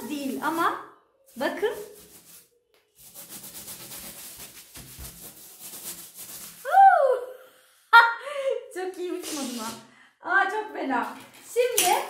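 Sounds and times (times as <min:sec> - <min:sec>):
balloon rubbing against hair: 0:00.0 - 0:07.2, 0:09.1 - 0:09.8.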